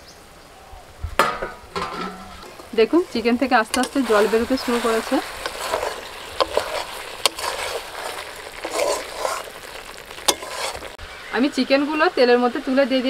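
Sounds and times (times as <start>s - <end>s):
spatula stirring and scraping: 2.4s - 11.0s
chicken sizzling in oil: 2.5s - 12.9s.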